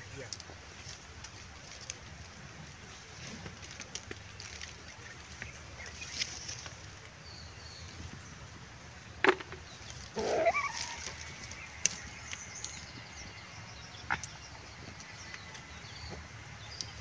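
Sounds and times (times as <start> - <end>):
branches rustling and clicking: 0.0 - 8.4, 9.2 - 17.0
wavering call: 10.2 - 11.4.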